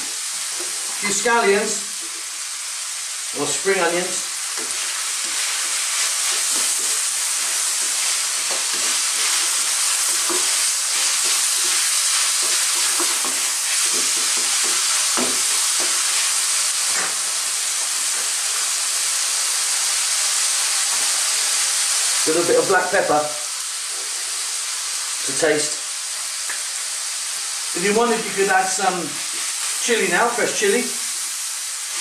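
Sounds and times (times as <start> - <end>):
food sizzling in a wok: 0.0 - 32.0
wooden utensil scraping wok: 4.4 - 17.0.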